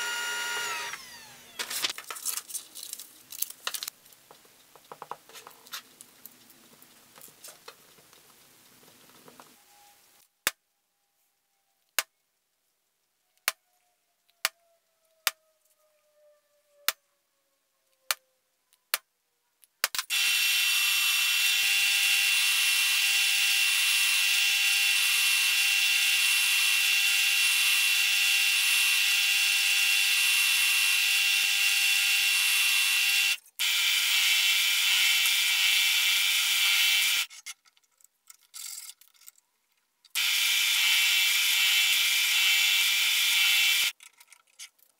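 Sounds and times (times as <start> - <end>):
drill press whining: 0.0 - 1.7.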